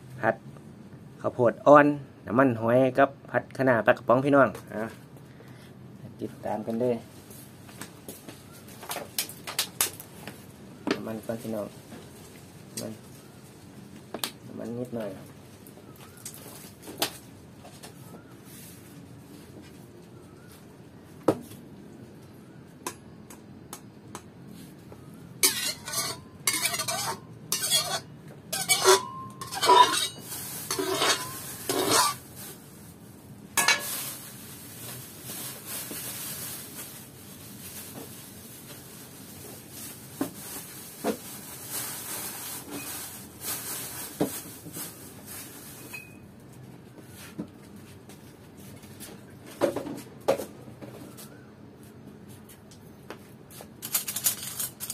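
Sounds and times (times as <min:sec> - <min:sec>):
metal pans and utensils clinking: 0:25.4 - 0:32.2, 0:33.6 - 0:34.1.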